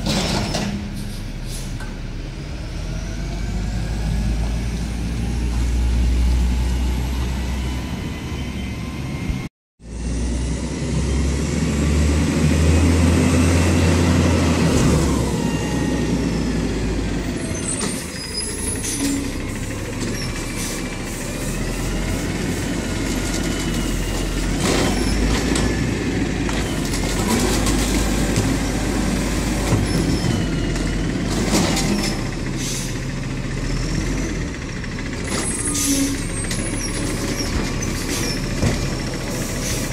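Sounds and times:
diesel engine running: 0.7s - 39.9s
air brakes hissing: 1.0s - 1.8s, 17.7s - 22.9s, 32.5s - 33.1s, 35.4s - 36.3s, 39.2s - 39.9s
knocks and clanks: 38.5s - 39.0s.

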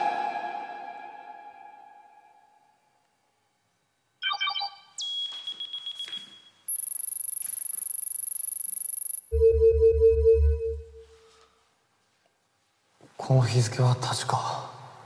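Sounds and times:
electronic beeps: 4.2s - 11.0s
high fast-pulsing tone: 6.7s - 11.0s.

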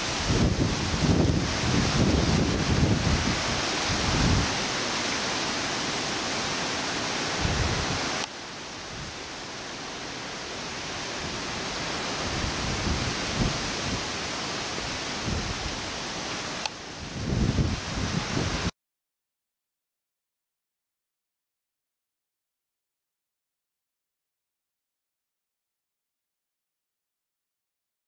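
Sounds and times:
wind buffeting microphone: 0.0s - 4.6s, 7.3s - 8.2s, 12.2s - 14.2s, 15.2s - 16.0s, 17.0s - 18.7s
rushing outdoor hiss: 0.0s - 18.7s.

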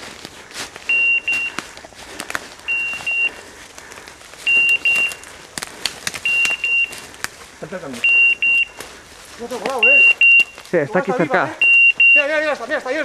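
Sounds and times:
twigs snapping: 0.0s - 10.8s
brush crackling: 0.0s - 13.0s
short high electronic beeps: 9.8s - 10.6s, 11.6s - 12.3s.

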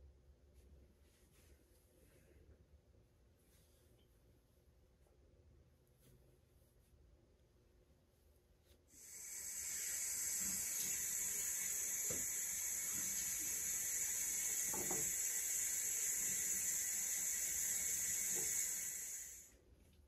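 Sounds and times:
tap water running: 9.0s - 19.5s.

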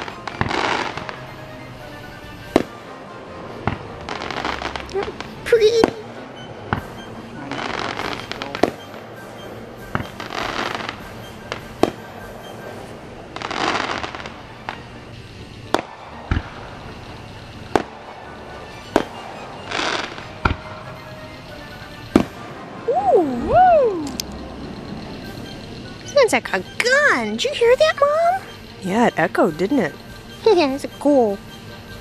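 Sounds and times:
crackling firework bursts: 0.0s - 1.5s, 3.6s - 6.1s, 6.7s - 27.1s
firework bangs: 0.0s - 1.5s, 2.3s - 2.9s, 3.5s - 22.9s
wavering firework whistle: 6.4s - 14.9s, 15.7s - 28.7s.

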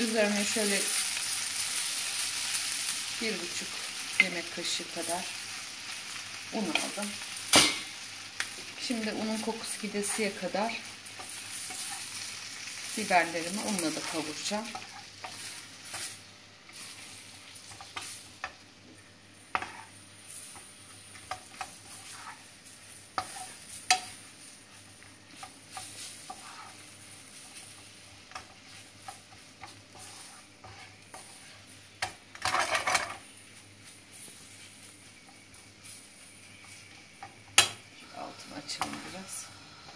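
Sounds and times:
faint oil sizzle: 0.0s - 39.9s
spatula scraping frying pan: 8.9s - 18.6s, 19.5s - 33.3s.

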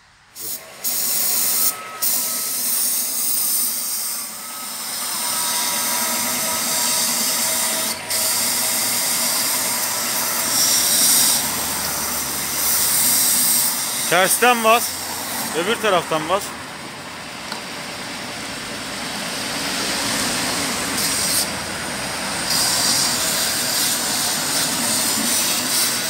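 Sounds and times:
air hose hissing: 0.4s - 4.2s.

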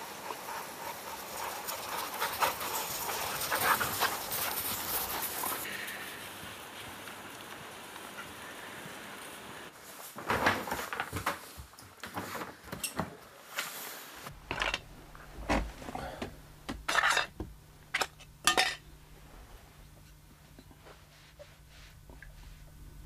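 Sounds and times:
metal kettle and lid clattering: 16.9s - 18.8s.

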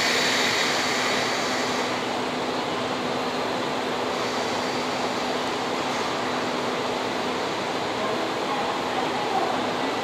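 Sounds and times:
high hiss: 0.0s - 2.1s
electric locomotive humming: 0.0s - 10.0s.

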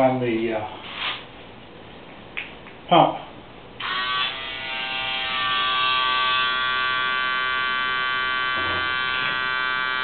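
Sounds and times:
electric pump humming: 3.8s - 10.0s.

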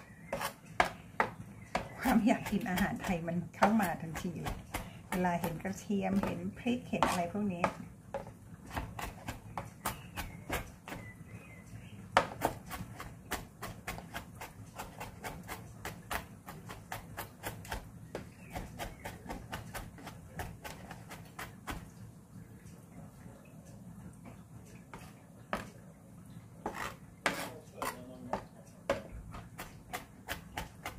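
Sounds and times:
knife chopping on cutting board: 0.3s - 5.6s, 7.0s - 11.1s, 12.2s - 21.9s, 26.7s - 30.9s.

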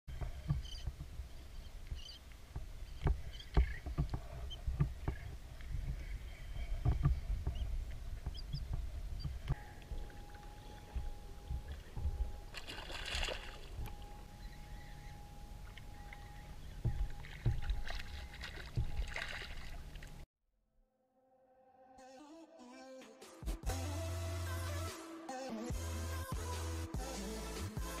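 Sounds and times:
low rumble: 4.9s - 20.2s
water slapping against boat hull: 11.0s - 14.1s, 15.7s - 20.2s.

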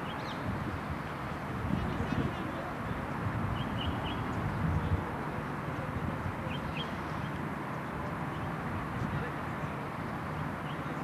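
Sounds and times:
bird chirps: 3.6s - 4.4s, 6.5s - 8.5s.

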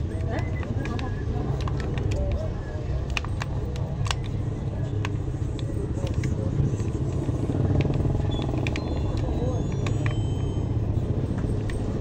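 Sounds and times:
magnetic cube panels snapping: 3.1s - 7.2s.

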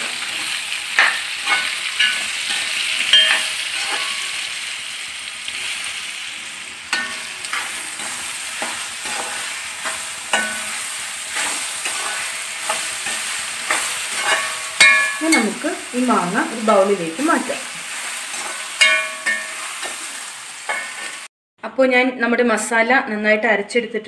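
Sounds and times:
metal spatula scraping a pan: 0.0s - 4.7s, 6.9s - 15.7s, 17.3s - 21.3s
mango sizzling in hot oil: 0.0s - 21.3s.

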